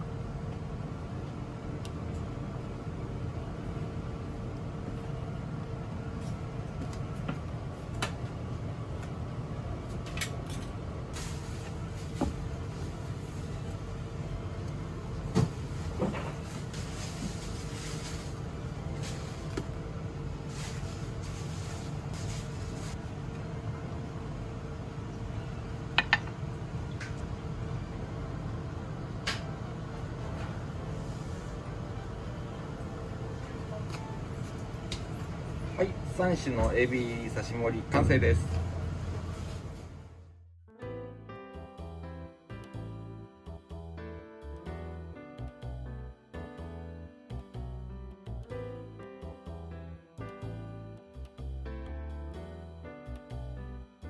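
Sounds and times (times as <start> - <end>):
low background hum: 0.0 - 41.0.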